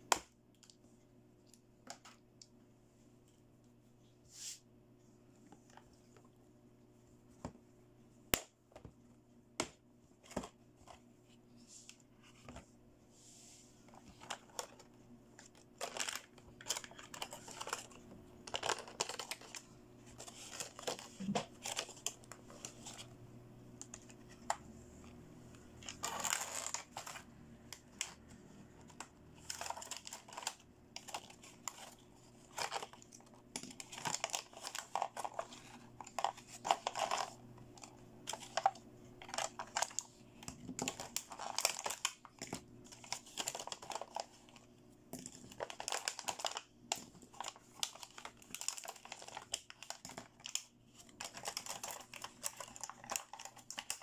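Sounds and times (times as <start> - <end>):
plastic packaging crinkling: 14.0 - 23.1, 25.8 - 54.0.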